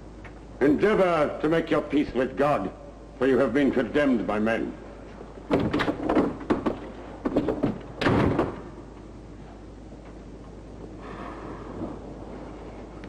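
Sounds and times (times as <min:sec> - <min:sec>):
knocks and clanks: 0:05.5 - 0:08.6
heavy door slamming shut: 0:05.5 - 0:08.7
faint hiss: 0:08.7 - 0:13.0.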